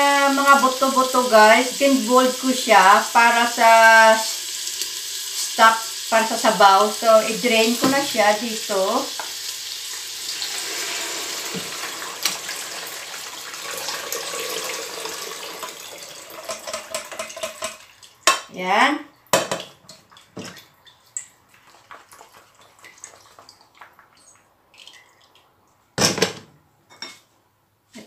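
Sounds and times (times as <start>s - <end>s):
liquid pouring through colander: 10.2s - 18.2s.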